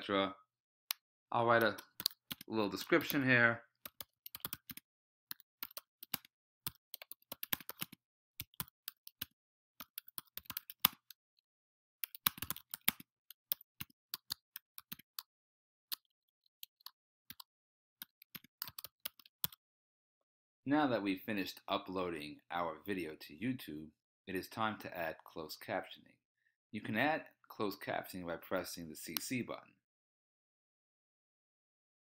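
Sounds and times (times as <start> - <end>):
keyboard typing clicks: 12.0 - 15.0.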